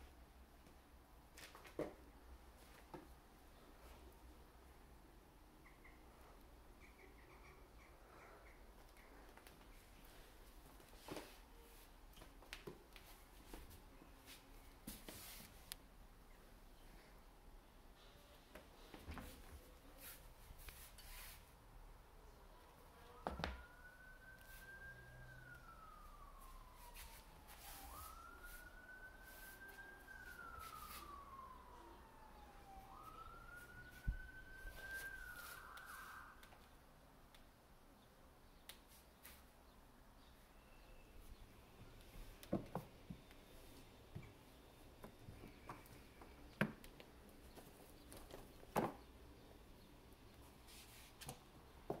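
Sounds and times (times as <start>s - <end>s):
faint siren wailing: 1.6s - 16.0s, 16.6s - 38.4s, 39.2s - 52.0s.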